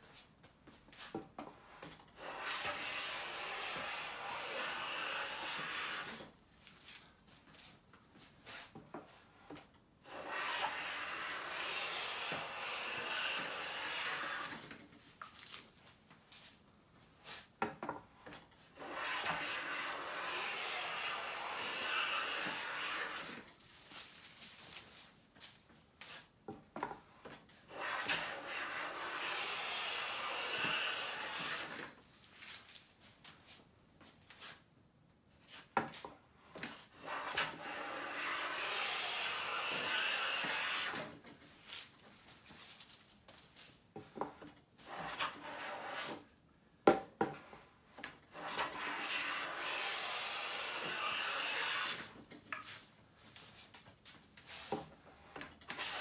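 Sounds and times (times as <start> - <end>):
hand plane shaving wood: 1.5 - 6.4, 8.4 - 14.8, 18.6 - 23.5, 27.0 - 32.0, 35.9 - 41.6, 44.1 - 46.3, 47.3 - 52.4, 54.4 - 56.0.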